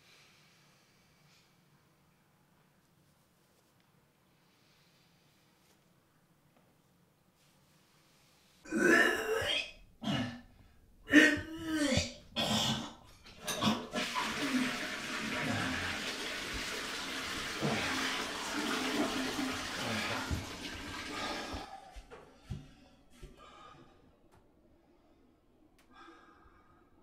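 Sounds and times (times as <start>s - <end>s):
man retching and gagging: 8.7s - 16.2s
toilet flushing: 12.7s - 22.1s.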